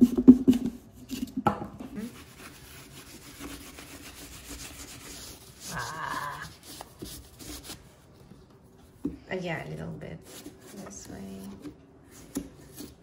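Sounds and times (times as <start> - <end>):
knife scraping through pumpkin: 0.5 - 7.9, 10.2 - 13.0.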